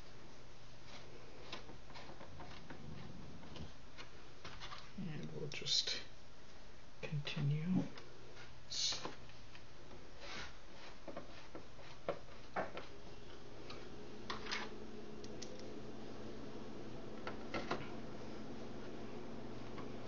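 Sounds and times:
low hum: 13.0s - 20.0s.

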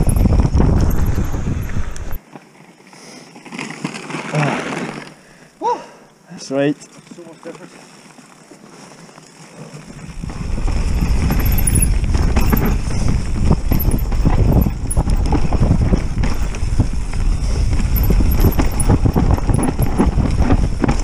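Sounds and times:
bike rattling and knocking: 0.0s - 2.2s, 9.9s - 21.0s
wind: 0.0s - 21.0s.

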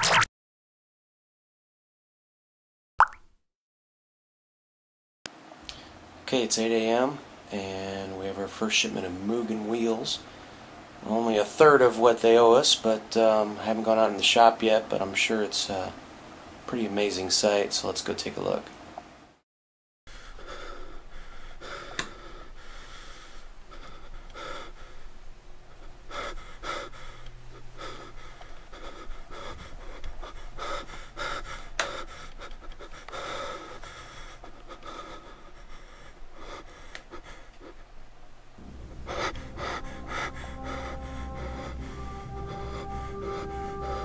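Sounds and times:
steady low hum: 5.4s - 19.3s, 20.1s - 44.0s
person breathing heavily: 20.1s - 37.9s, 38.6s - 44.0s.

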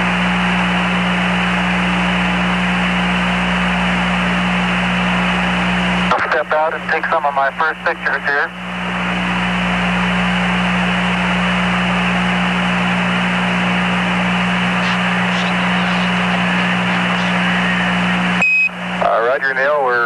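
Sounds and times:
low hum: 0.0s - 19.2s
radio static hiss: 3.4s - 20.0s.

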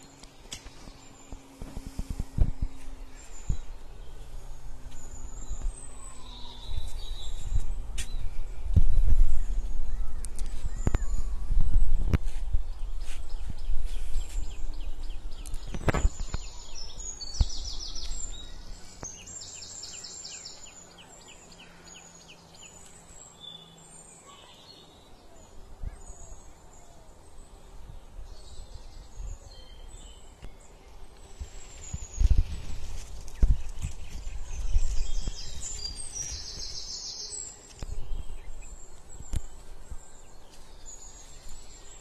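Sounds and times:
low rumble: 0.0s - 19.4s
small birds calling: 0.0s - 42.0s.

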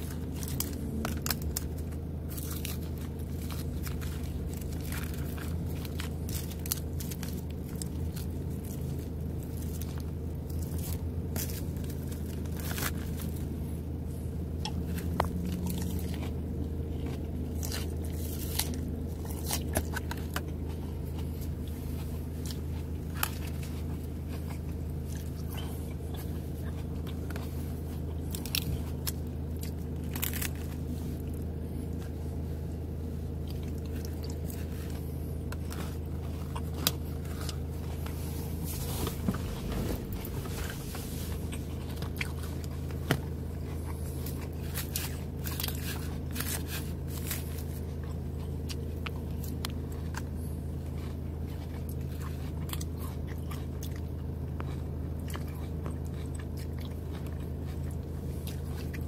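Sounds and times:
low hum: 0.0s - 59.0s
salad chewing and crunching: 0.0s - 59.0s.

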